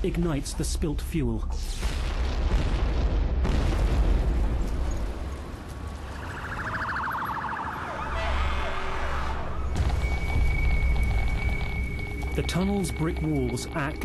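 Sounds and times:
ambulance siren: 6.0s - 12.4s.

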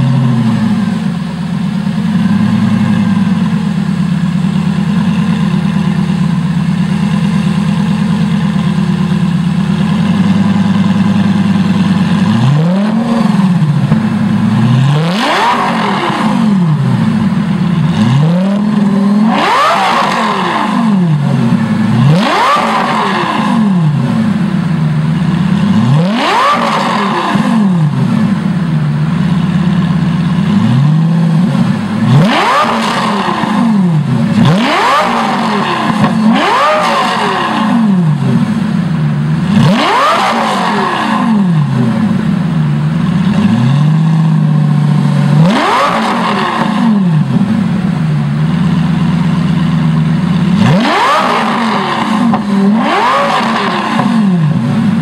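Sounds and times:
car engine idling and revving: 0.0s - 55.0s.

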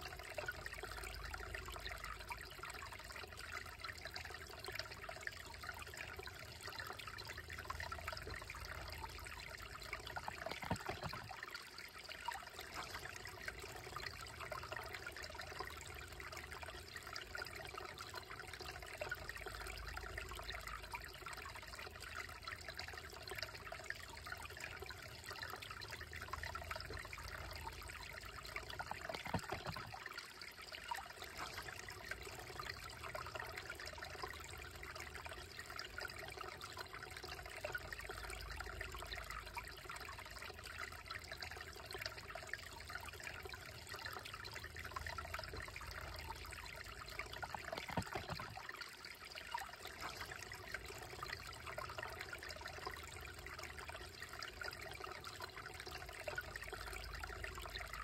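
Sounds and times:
creek babbling over rocks: 8.1s - 20.4s, 25.8s - 39.8s, 41.6s - 58.0s.

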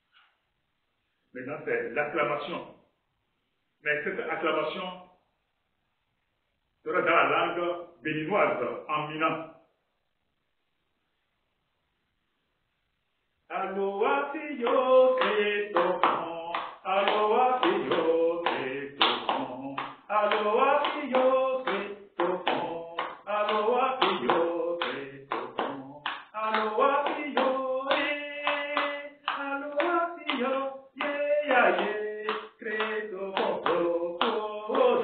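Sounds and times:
man singing solo: 13.5s - 35.0s
hands clapping: 14.6s - 35.0s.

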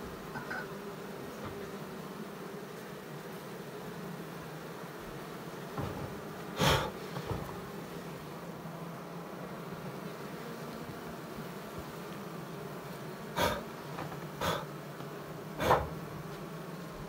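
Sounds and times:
bees buzzing: 0.0s - 17.0s.

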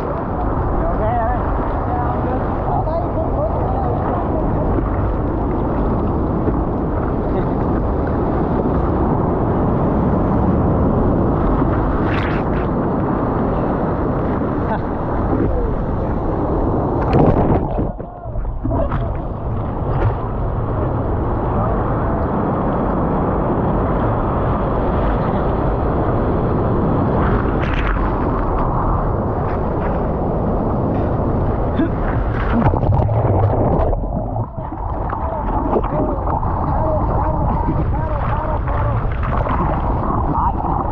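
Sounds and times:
surf rushing around surfboard: 0.0s - 40.9s
wave splashing over board: 0.0s - 40.9s
water splashing over board: 30.9s - 40.9s.

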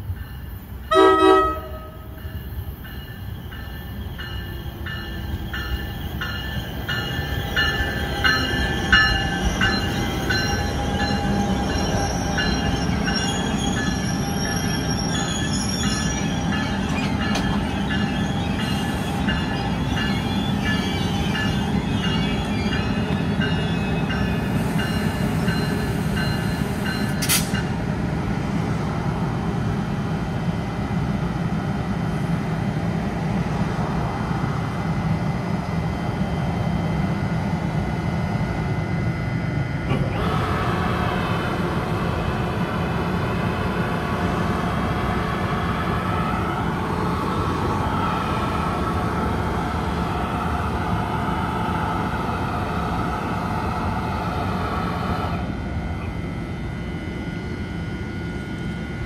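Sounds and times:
train rumble passing: 0.0s - 59.0s
train horn blast: 0.9s - 2.1s.

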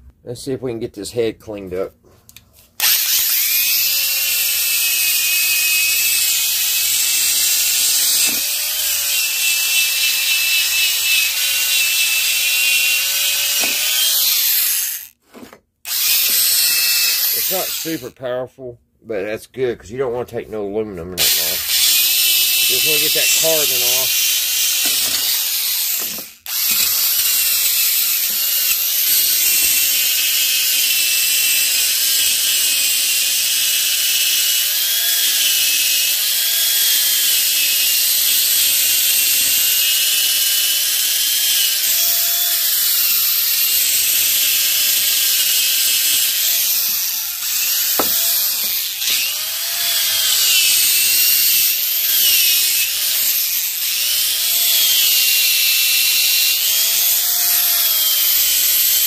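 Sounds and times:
electric drill motor whine: 2.8s - 15.1s, 15.9s - 18.0s, 21.2s - 59.0s.

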